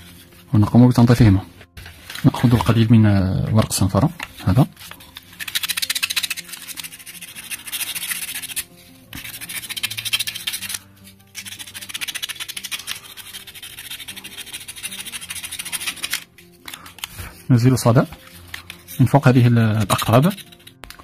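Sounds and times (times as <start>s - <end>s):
soft background music: 0.0s - 21.0s
sandpaper scratching on metal: 5.3s - 10.8s, 11.4s - 16.3s, 19.8s - 20.8s.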